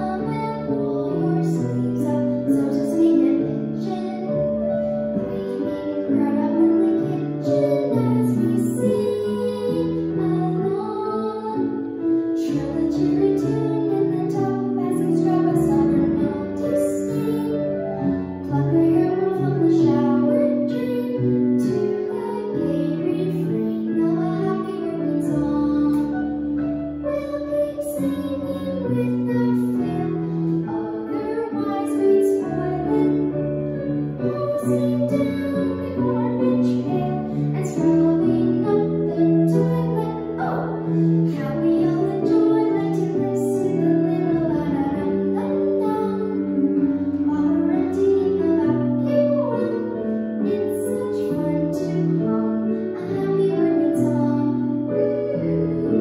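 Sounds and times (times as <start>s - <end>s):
girl singing: 0.0s - 56.0s.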